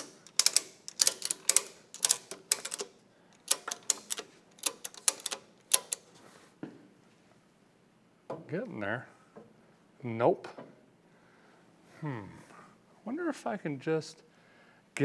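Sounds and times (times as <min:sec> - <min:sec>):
ratchet buckle clicking: 0:00.0 - 0:06.0.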